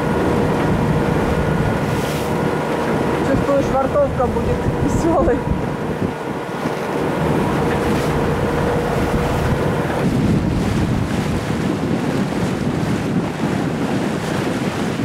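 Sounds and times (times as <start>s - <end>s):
water rushing along hull: 0.0s - 15.0s
wind buffeting microphone: 0.0s - 15.0s.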